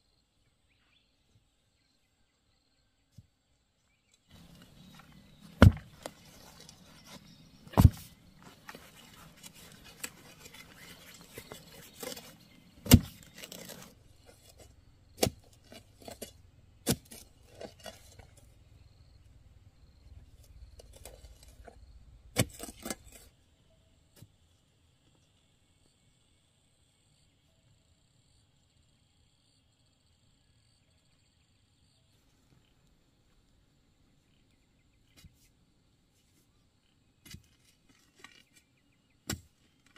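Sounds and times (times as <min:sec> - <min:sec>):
soil and twigs scraping: 0:04.2 - 0:19.2, 0:19.8 - 0:23.4, 0:37.2 - 0:39.9
metal bar striking hard soil: 0:04.3 - 0:18.4, 0:22.3 - 0:23.3.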